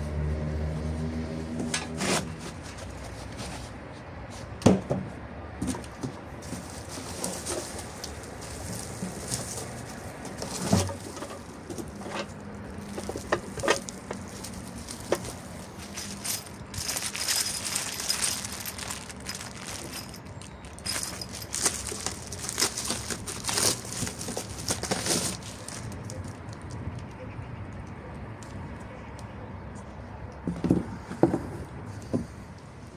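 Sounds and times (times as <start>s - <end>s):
plastic wrap crinkling: 12.7s - 26.7s.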